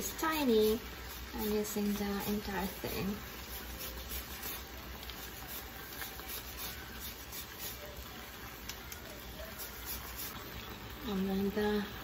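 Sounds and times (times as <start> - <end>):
grater scraping lemon: 0.4 - 7.9, 9.4 - 10.4.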